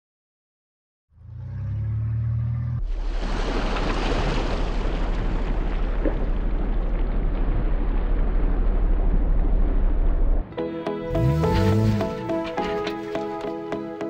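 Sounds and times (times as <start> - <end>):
water rushing from tyres: 2.8 - 10.2, 11.1 - 13.4
low engine rumble: 4.6 - 10.5.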